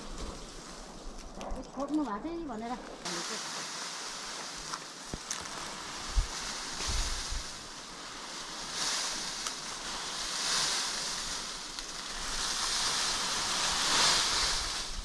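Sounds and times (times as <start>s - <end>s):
wind blowing in gusts: 0.0s - 15.0s
wind rumble on microphone: 5.8s - 15.0s.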